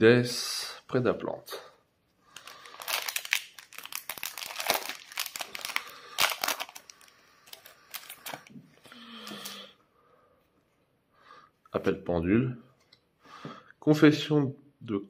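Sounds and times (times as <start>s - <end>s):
foil wrapper tearing and crinkling: 2.4s - 8.5s.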